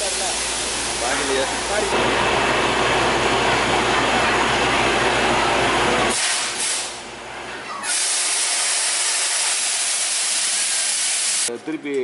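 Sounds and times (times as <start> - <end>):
compressed air and water blasting: 0.0 - 1.9, 6.0 - 7.0, 7.8 - 11.5
compressor engine hum: 0.0 - 12.0.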